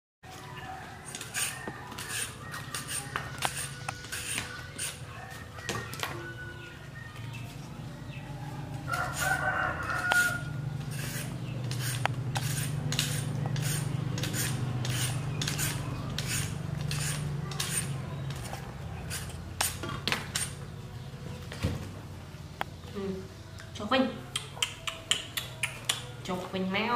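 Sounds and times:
rooster crowing: 0.3 - 7.0, 8.4 - 10.7
vegetable peeler scraping: 1.0 - 5.0, 8.9 - 20.6.

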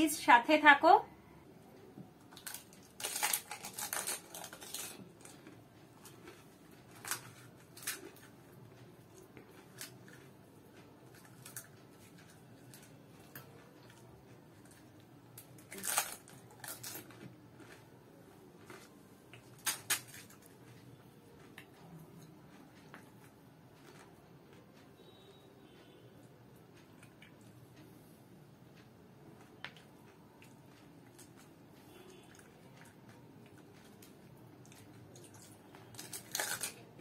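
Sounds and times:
crisp shells crackling and crunching: 2.2 - 8.4, 14.6 - 17.9, 18.6 - 20.4, 33.8 - 37.0.

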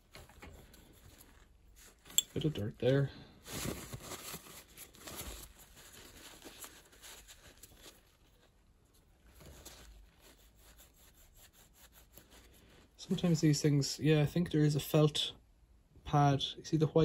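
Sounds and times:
tissue rustling and rubbing: 0.0 - 13.5.

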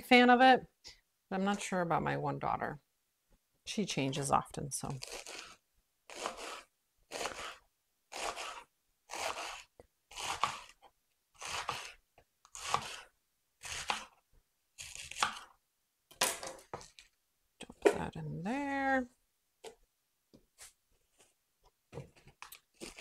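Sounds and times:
knife slicing lettuce on board: 5.0 - 10.8, 11.4 - 14.1, 14.8 - 15.5.

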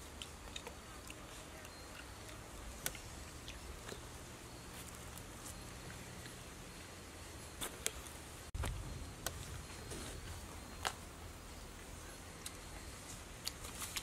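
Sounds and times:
person chewing food: 0.0 - 6.4
low steady hum: 0.0 - 14.0.

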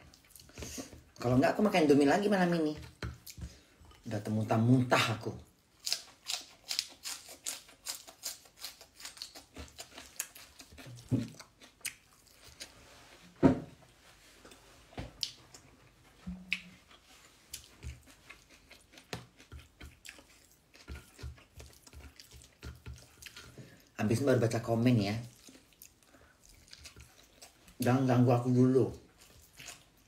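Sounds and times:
person chewing and smacking lips: 0.0 - 1.3, 2.8 - 4.1, 5.4 - 12.8, 14.4 - 28.0, 28.9 - 30.0
wet mouth clicks: 16.4 - 16.8.

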